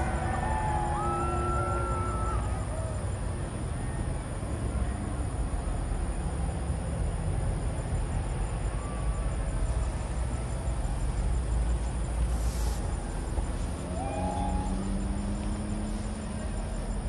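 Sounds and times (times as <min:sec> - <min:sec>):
background hiss: 0:00.0 - 0:17.0
insects chirping: 0:00.0 - 0:17.0
brief high hiss: 0:12.3 - 0:12.9.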